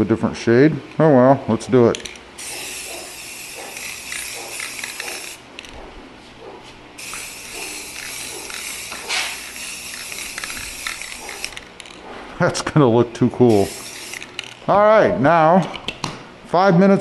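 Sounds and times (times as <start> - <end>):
spray paint can hissing: 2.4 - 5.7, 7.0 - 11.7, 13.5 - 14.3.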